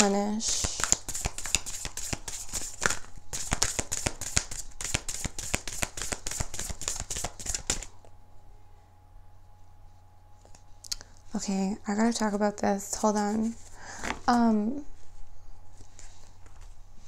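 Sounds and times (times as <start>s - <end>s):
cards being shuffled: 0.5s - 7.9s.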